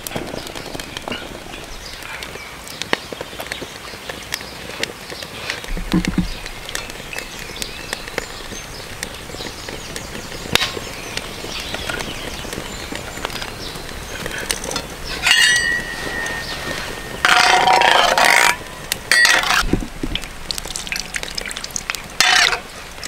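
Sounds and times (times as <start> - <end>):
fire crackling and popping: 0.0 - 23.0
dull knock: 5.7 - 6.4
oil pouring into pan: 20.2 - 22.7.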